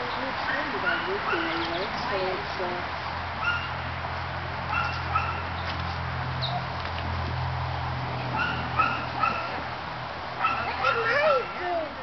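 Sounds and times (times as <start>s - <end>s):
dog yipping: 0.5s - 1.8s, 3.4s - 3.8s, 4.7s - 5.5s, 8.3s - 9.6s, 10.4s - 11.9s.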